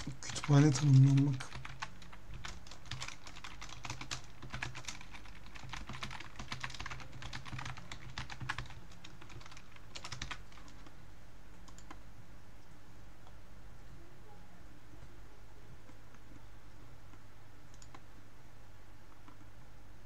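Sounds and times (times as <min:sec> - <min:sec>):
typing on computer keyboard: 0:00.0 - 0:10.9, 0:11.6 - 0:12.0, 0:17.7 - 0:18.0.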